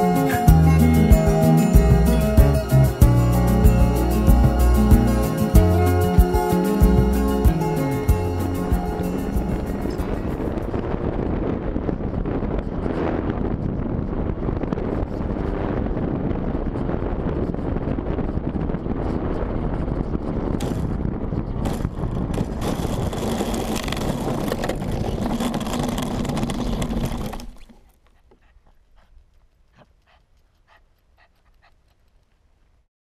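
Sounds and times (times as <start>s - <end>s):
wind noise: 0.0s - 27.8s
wheels rumbling over concrete: 20.5s - 27.9s
faint ticks: 28.0s - 32.7s.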